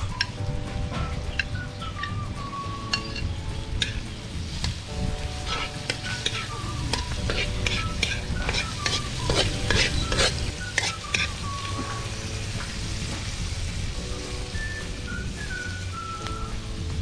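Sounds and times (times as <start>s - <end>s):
food sizzling in oil: 0.0s - 17.0s
spatula scraping in wok: 2.9s - 13.6s.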